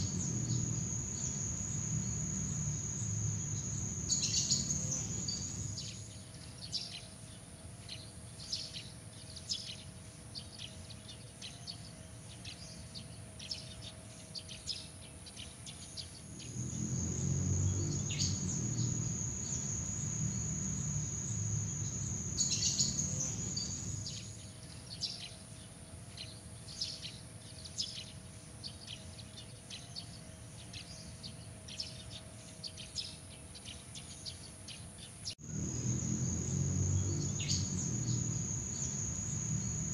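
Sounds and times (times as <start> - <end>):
high insect trill: 0.0 - 6.2, 16.2 - 24.5, 35.4 - 39.9
short insect chirps: 0.0 - 6.2, 16.2 - 24.4, 35.4 - 39.9.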